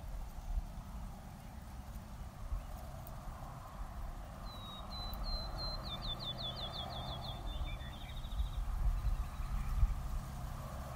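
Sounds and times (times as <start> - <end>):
low background rumble: 0.0 - 10.9
songbird singing: 0.0 - 10.9.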